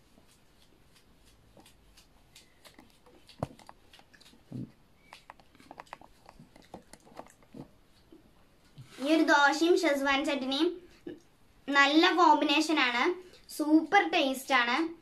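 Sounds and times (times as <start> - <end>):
crunching of food being chewed: 0.2 - 8.3.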